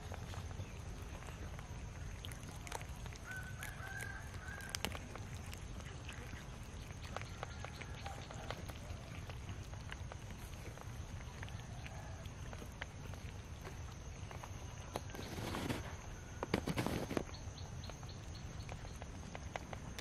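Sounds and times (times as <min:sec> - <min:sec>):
steady low rumble: 0:00.0 - 0:03.6
cats chewing and lip-smacking: 0:00.0 - 0:20.0.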